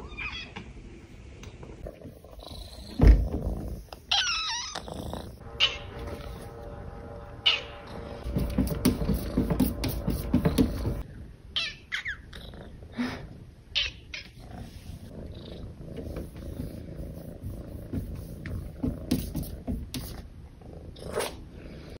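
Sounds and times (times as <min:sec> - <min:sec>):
cat purring: 0:01.8 - 0:06.4, 0:14.2 - 0:19.6.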